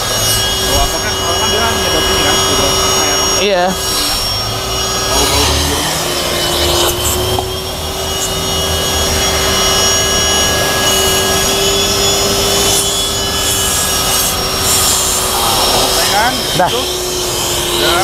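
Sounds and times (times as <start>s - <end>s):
vacuum cleaner whining: 0.0s - 18.0s.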